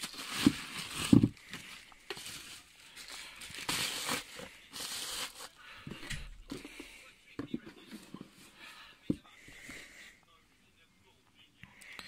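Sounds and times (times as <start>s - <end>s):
bubble wrap crinkling: 0.0s - 5.7s.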